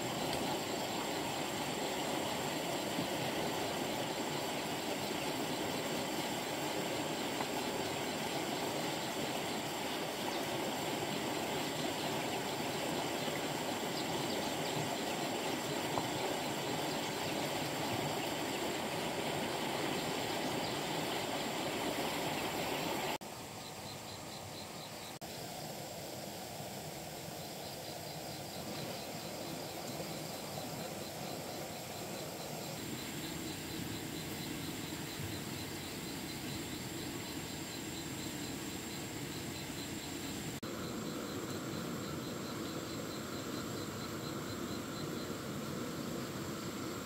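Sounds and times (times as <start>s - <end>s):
river water rushing: 0.0s - 23.2s.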